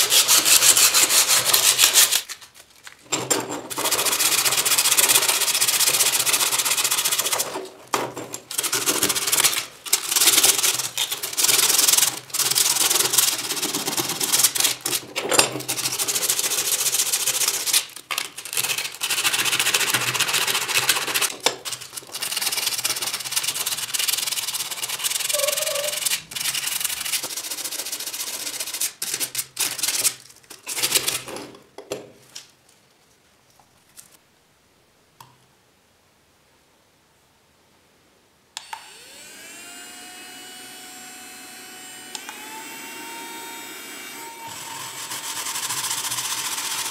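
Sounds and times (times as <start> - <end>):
sandpaper scraping metal: 0.0 - 2.5, 3.7 - 7.6, 8.5 - 31.2.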